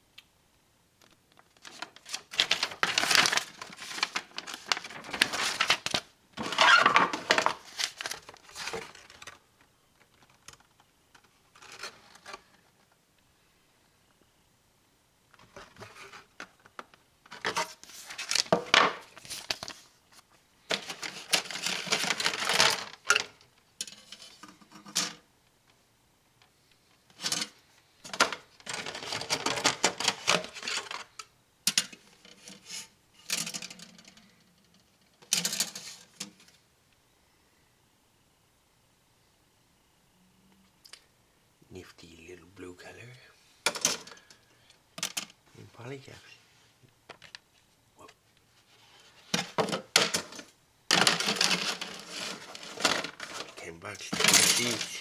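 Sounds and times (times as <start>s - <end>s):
paper and plastic packaging rustling: 1.0s - 12.9s, 15.4s - 23.4s, 27.1s - 31.2s, 48.5s - 55.0s.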